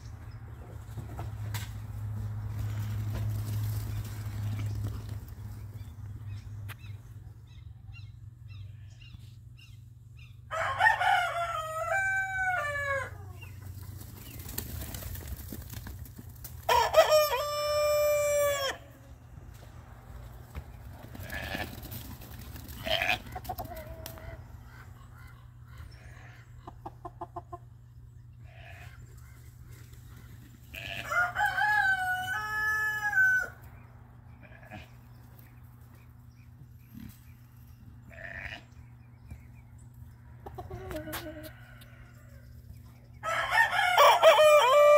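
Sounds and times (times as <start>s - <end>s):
rooster crowing: 10.5s - 13.4s, 16.7s - 19.0s, 30.8s - 33.6s, 43.2s - 44.9s.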